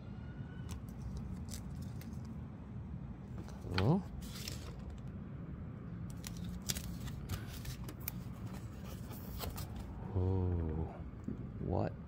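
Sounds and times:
steady low hum: 0.0 - 12.0
paper and packaging rustling: 3.4 - 5.0, 6.1 - 9.9.

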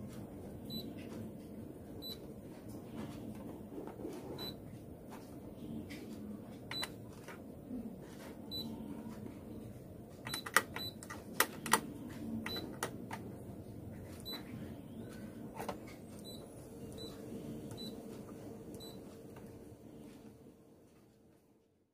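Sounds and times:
copier running noise: 0.0 - 21.1
copier button beeps: 0.7 - 1.0, 2.0 - 2.2, 4.4 - 4.6, 6.7 - 7.0, 8.5 - 8.8, 10.2 - 11.0, 12.4 - 12.8, 14.2 - 14.5, 16.2 - 18.0, 18.8 - 19.0.

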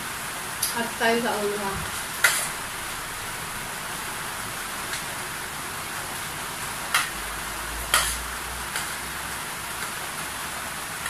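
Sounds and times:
steady hiss: 0.0 - 11.0
cutlery clinking on a plate: 7.9 - 8.2.

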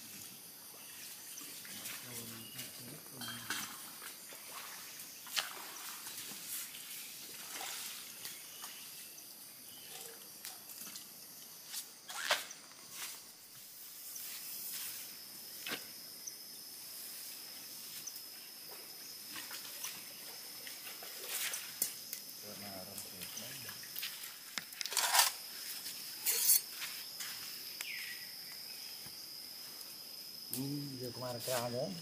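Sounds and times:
steady high hiss: 0.0 - 32.0.

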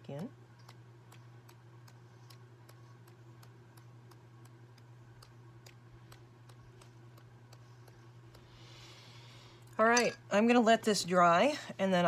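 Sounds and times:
low hum: 0.0 - 12.0
faint ticking: 0.2 - 9.8.

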